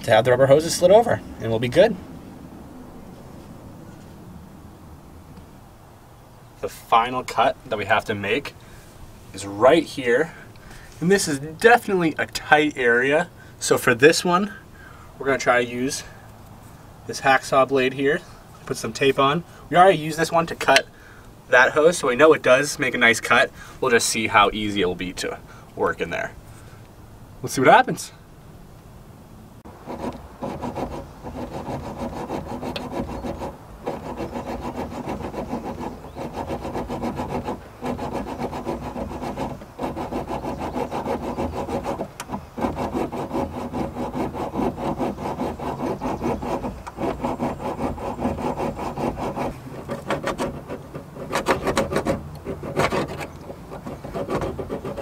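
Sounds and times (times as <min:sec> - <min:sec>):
hacksaw sawing through metal: 0:29.7 - 0:55.0.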